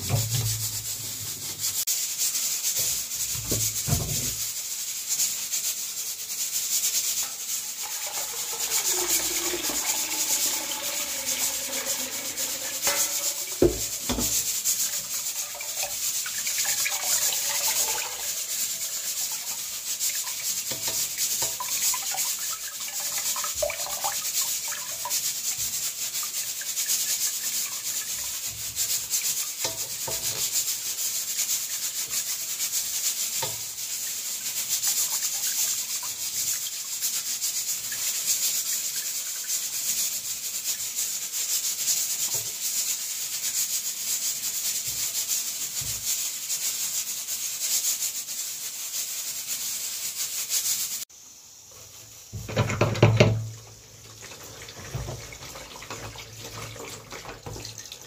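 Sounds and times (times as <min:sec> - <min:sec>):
tap water rushing: 0:00.0 - 0:01.7, 0:03.3 - 0:04.4, 0:07.2 - 0:25.2, 0:26.2 - 0:30.6, 0:51.7 - 0:58.0
hands wringing wet cloth: 0:07.7 - 0:19.5.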